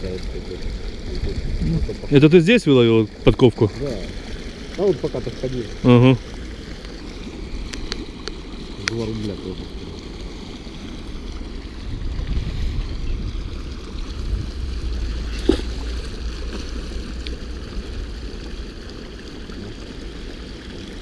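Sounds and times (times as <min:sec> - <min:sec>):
water rushing from spillway: 0:00.0 - 0:21.0
wind on microphone: 0:01.1 - 0:02.1, 0:11.7 - 0:16.1.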